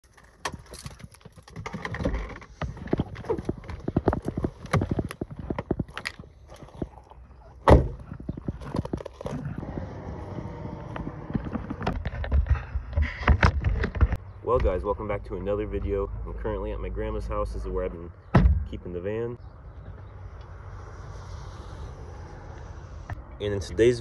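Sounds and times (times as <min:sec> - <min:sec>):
footsteps crunching on gravel: 0:02.5 - 0:07.0.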